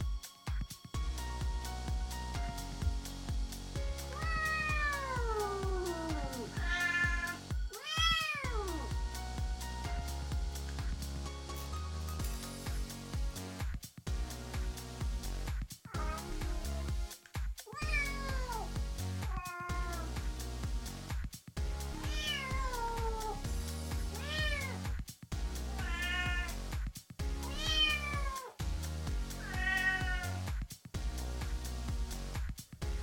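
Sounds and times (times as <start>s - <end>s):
background music: 0.0s - 33.0s
kitten meowing: 4.2s - 8.9s, 15.9s - 16.8s, 17.7s - 18.7s, 19.3s - 20.1s, 22.0s - 23.4s, 24.2s - 24.8s, 25.7s - 26.5s, 27.5s - 28.5s, 29.4s - 30.4s.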